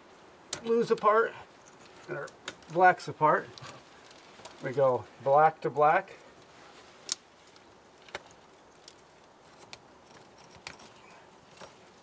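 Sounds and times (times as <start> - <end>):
wire connectors clicking and rattling: 7.0 - 12.0.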